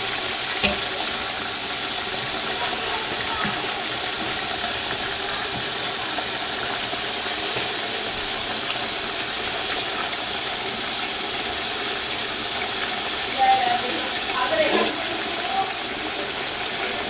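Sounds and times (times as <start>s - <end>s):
chicken frying with sizzle: 0.0s - 17.0s.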